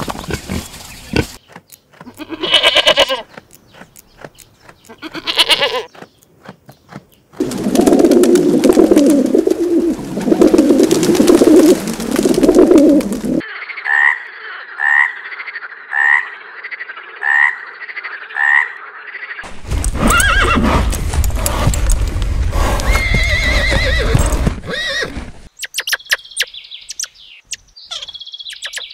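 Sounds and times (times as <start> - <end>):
frog croaking: 13.4 - 19.5
horse whinnying: 19.9 - 20.8, 22.6 - 25.2.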